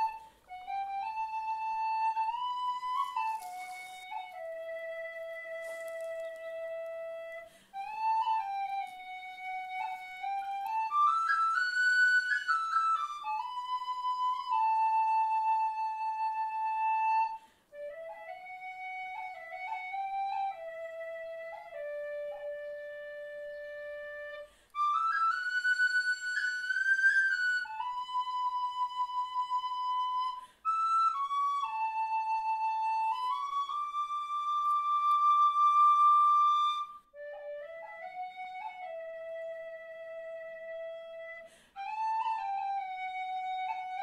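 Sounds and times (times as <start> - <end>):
solo woodwind melody: 0.0 - 44.0.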